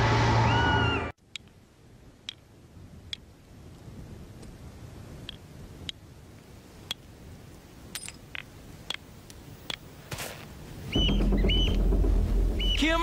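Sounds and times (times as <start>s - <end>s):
hammerstone striking flint: 7.9s - 9.0s.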